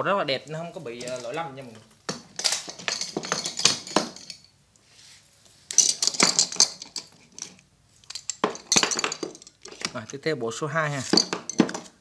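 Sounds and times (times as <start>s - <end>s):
screwdrivers clinking on table: 2.1s - 4.5s, 5.7s - 10.1s, 11.0s - 12.0s.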